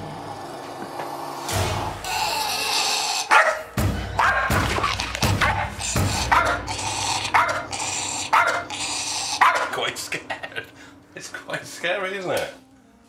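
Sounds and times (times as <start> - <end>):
dog barking aggressively: 3.3 - 9.8.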